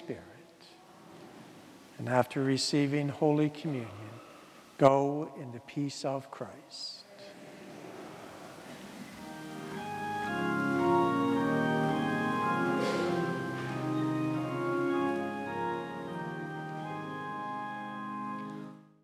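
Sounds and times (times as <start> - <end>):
church organ sustained chords: 9.2 - 19.0.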